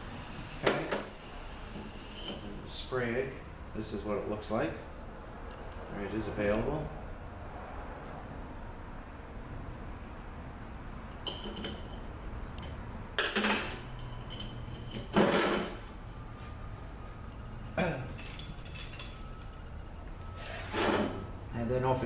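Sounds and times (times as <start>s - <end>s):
metal parts clinking on a workbench: 11.2s - 12.0s, 12.6s - 15.7s, 18.2s - 19.6s.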